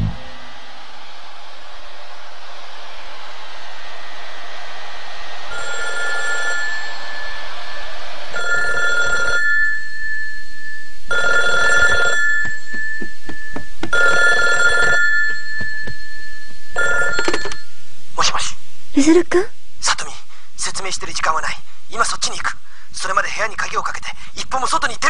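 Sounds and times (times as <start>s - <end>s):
telephone ringing: 5.6s - 6.8s, 8.4s - 10.4s, 11.1s - 17.7s.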